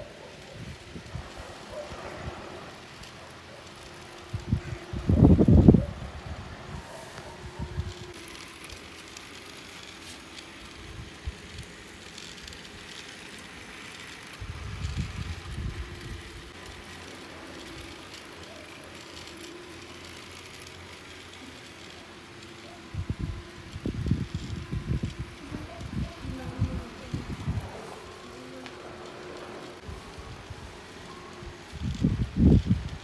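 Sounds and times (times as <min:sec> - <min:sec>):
toy train motor hum: 0:00.0 - 0:33.0
wheels clicking on track: 0:00.0 - 0:33.0
wind rumble on microphone: 0:00.6 - 0:02.8, 0:04.3 - 0:08.2, 0:14.4 - 0:16.6, 0:22.9 - 0:28.0, 0:31.4 - 0:33.0.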